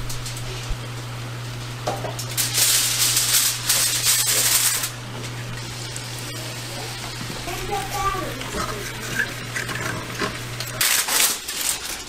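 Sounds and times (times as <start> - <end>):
hot oil sizzling in a skillet: 1.8 - 10.8.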